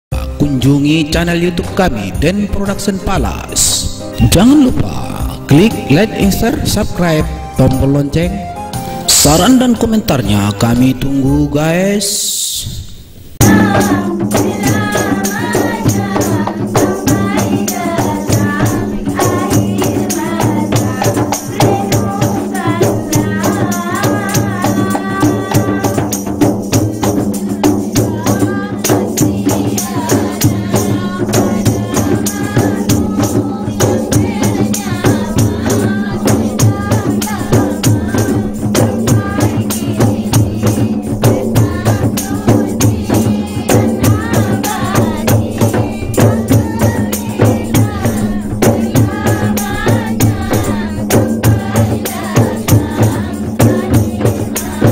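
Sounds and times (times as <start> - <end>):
frame drums played by hand: 0.1 - 11.5, 13.4 - 54.9
woman singing into microphone: 13.4 - 54.9.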